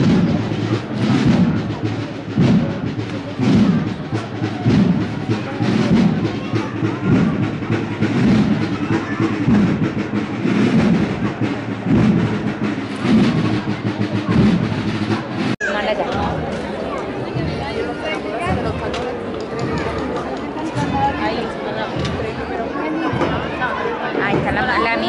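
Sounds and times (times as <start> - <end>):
band playing slow march: 0.0 - 24.8
drums beating heavily: 0.0 - 25.0.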